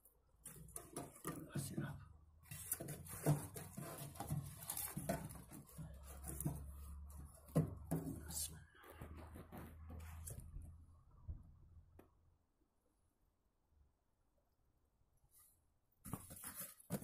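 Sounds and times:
firewood rustling and knocking: 0:00.4 - 0:10.6.

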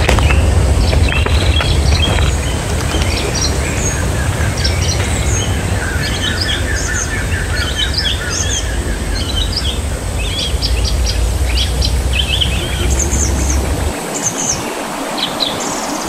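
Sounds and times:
low rumble: 0:00.0 - 0:14.6
wild birds chirping: 0:00.0 - 0:16.0.

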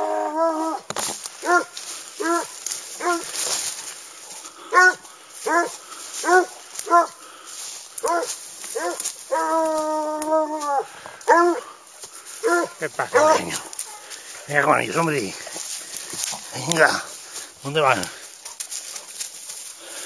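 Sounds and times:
dog howling: 0:00.0 - 0:00.8, 0:01.4 - 0:03.2, 0:04.7 - 0:07.1, 0:08.0 - 0:11.7, 0:12.4 - 0:14.0
leaves and brush rustling: 0:00.0 - 0:20.0
dog yelping barks: 0:01.4 - 0:03.3, 0:04.7 - 0:07.2, 0:08.0 - 0:11.7, 0:12.4 - 0:14.1.

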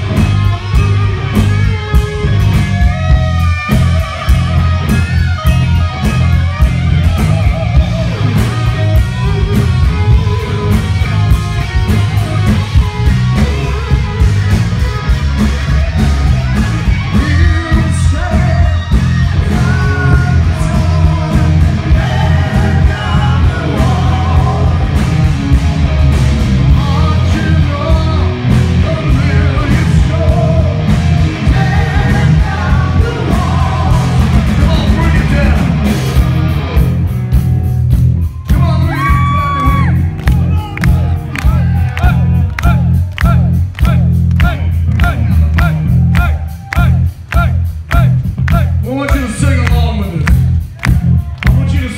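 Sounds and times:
bass guitar: 0:00.0 - 0:51.9
distorted electric guitars: 0:00.0 - 0:51.9
drums: 0:00.0 - 0:51.9
man singing: 0:17.0 - 0:25.2, 0:26.7 - 0:35.9, 0:41.4 - 0:50.3, 0:51.4 - 0:51.9.

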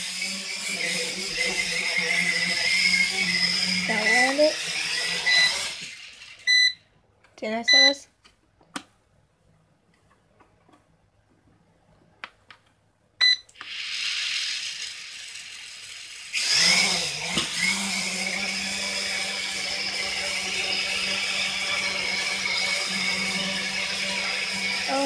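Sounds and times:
drone propellers whining: 0:00.0 - 0:05.8
short beep: 0:07.7 - 0:08.0.

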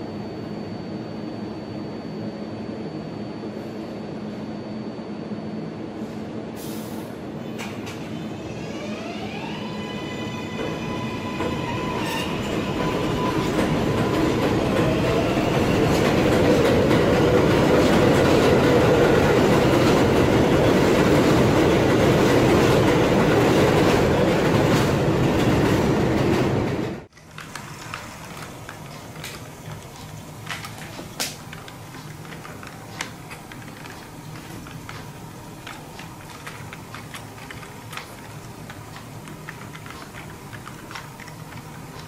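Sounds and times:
subway train motors whining: 0:00.0 - 0:42.0
train wheels clickety-clack: 0:10.6 - 0:42.0
model train clicking on track: 0:27.1 - 0:42.0.

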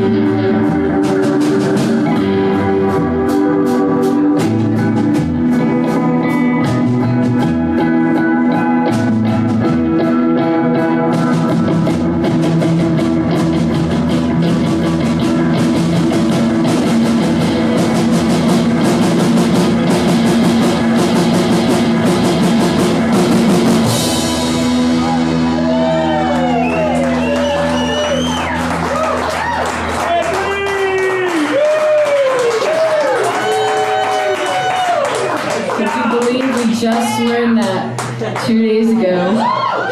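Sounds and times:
electric guitar chords and riffs: 0:00.0 - 0:31.6
drum kit: 0:00.0 - 0:39.8.

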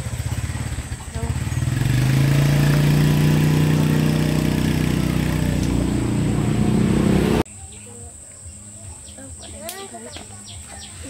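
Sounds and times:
vehicle engine running: 0:00.0 - 0:07.4.

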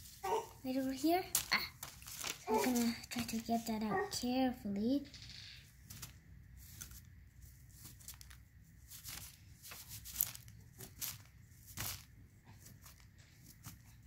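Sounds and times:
clay crumbling clicks: 0:01.3 - 0:02.8.

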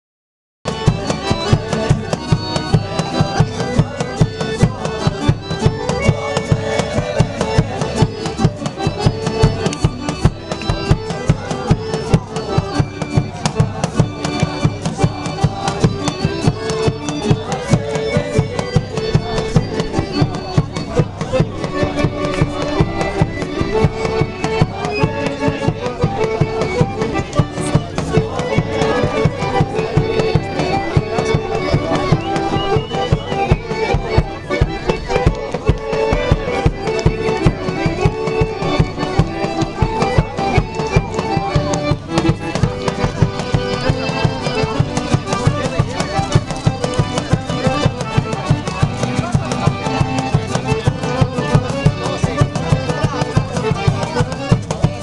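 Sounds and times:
drum beat: 0:00.7 - 0:55.0
string instrument melody: 0:00.7 - 0:55.0.

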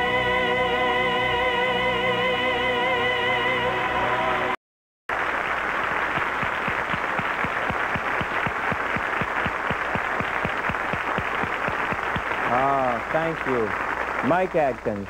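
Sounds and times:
studio audience applauding: 0:05.1 - 0:15.0.

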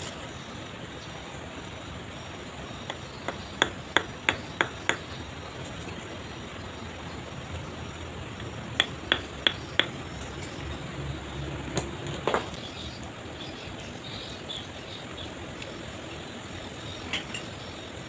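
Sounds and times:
stone tapping into mortar: 0:08.4 - 0:10.0.

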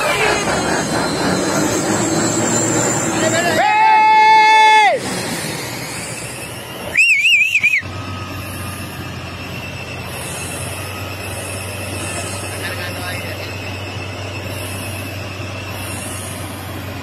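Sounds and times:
shrill warbling whistle: 0:00.0 - 0:16.8
heavy truck engines running: 0:00.0 - 0:17.0.

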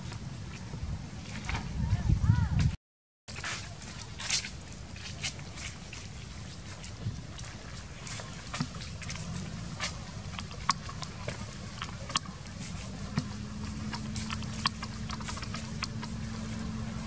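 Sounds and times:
steady low hum: 0:03.3 - 0:17.0
low rumble: 0:06.2 - 0:17.0
sharp clicks and ticks: 0:08.6 - 0:16.3.

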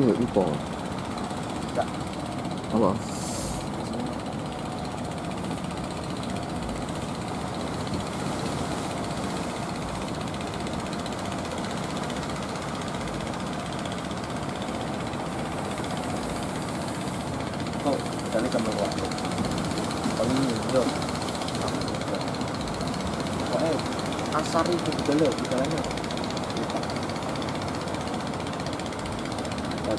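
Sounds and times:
boat engines running: 0:00.0 - 0:29.9
surf rushing: 0:14.4 - 0:28.6.

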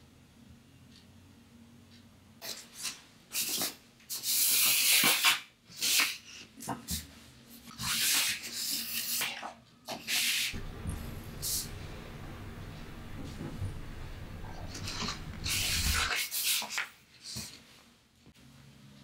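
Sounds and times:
low steady hum: 0:10.5 - 0:16.1
paper sheets rustling and sliding: 0:10.6 - 0:16.1.

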